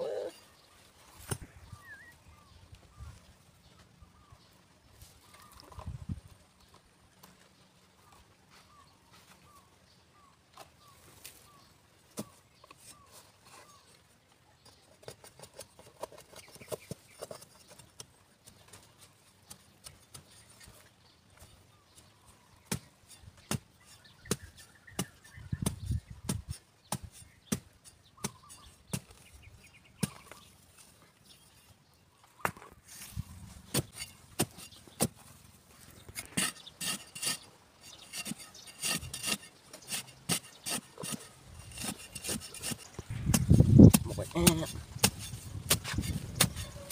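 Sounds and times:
digging bar striking hard soil: 0:22.7 - 0:29.3, 0:30.0 - 0:30.5, 0:33.6 - 0:35.3, 0:35.9 - 0:46.9.

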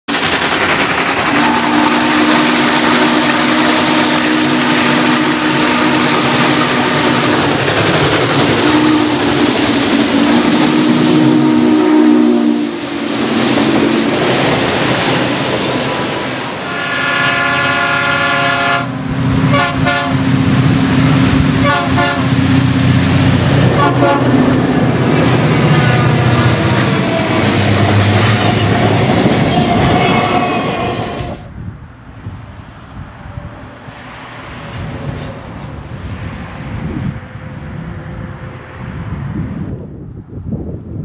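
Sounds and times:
train running noise: 0:00.1 - 0:41.0
steam whistle blasts: 0:01.3 - 0:07.4, 0:08.6 - 0:09.3, 0:10.2 - 0:12.8, 0:16.7 - 0:20.2, 0:21.6 - 0:22.3, 0:23.8 - 0:24.3
diesel locomotive air horn: 0:01.3 - 0:07.6, 0:08.5 - 0:09.6, 0:10.2 - 0:12.8, 0:16.6 - 0:20.4, 0:21.6 - 0:22.5, 0:23.6 - 0:24.5, 0:25.2 - 0:31.5.

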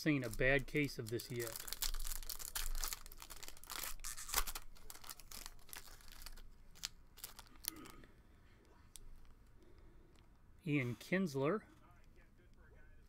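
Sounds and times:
cards crackling: 0:00.0 - 0:07.9
foil wrapper crinkling and tearing: 0:00.2 - 0:08.0.

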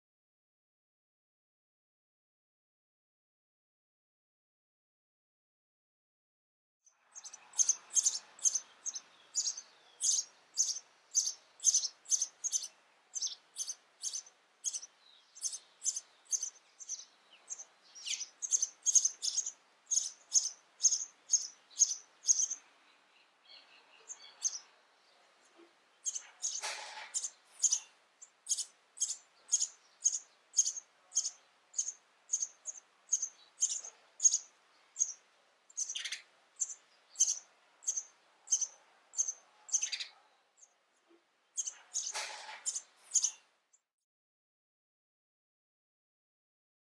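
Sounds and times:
sparrows chirping: 0:06.9 - 0:43.5
brief rustle: 0:26.6 - 0:27.6, 0:42.1 - 0:43.2.

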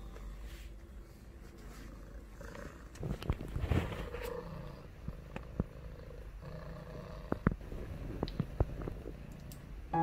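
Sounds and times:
cat purring: 0:01.6 - 0:09.6.

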